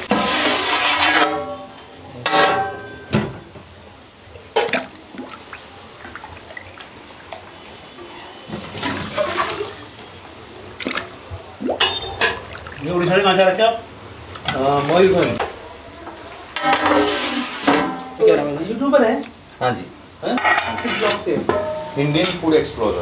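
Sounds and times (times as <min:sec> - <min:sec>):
metal pot lid clanging: 0:00.9 - 0:03.3, 0:16.6 - 0:18.2, 0:20.3 - 0:22.4
liquid sloshing: 0:08.5 - 0:10.1, 0:10.7 - 0:13.3.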